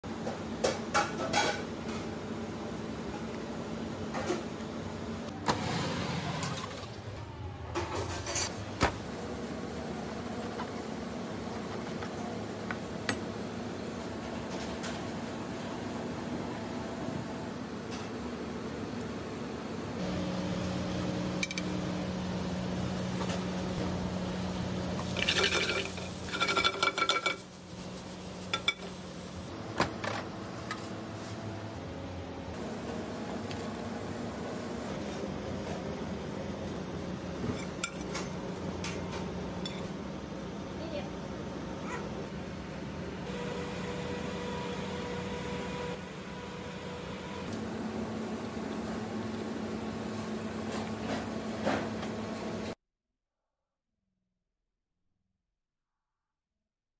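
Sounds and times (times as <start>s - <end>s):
kitchen equipment hum: 0.1s - 52.8s
pan clattering and clinking: 25.2s - 27.5s.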